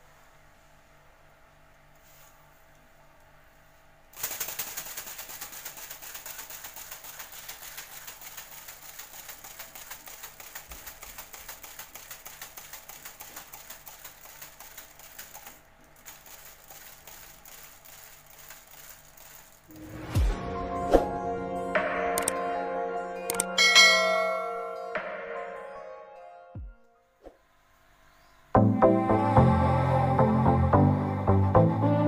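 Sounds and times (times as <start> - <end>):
toy bird wings fluttering: 4.1 - 20.2.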